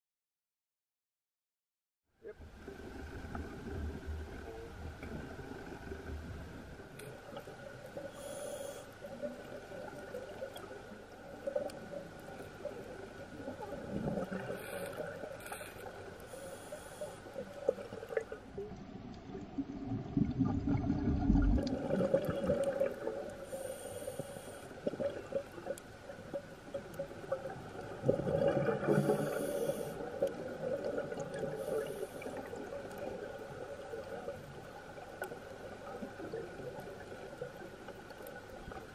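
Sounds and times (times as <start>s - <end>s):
exhaled bubbles gurgling: 2.6s - 38.9s
regulator inhale hiss: 8.0s - 9.1s, 14.4s - 17.5s, 23.4s - 24.8s, 28.8s - 30.2s, 31.5s - 32.6s.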